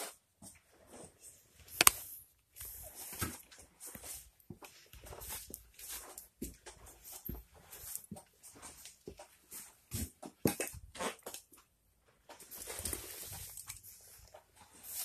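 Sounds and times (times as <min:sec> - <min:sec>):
phone handling rustle: 0:01.7 - 0:02.1.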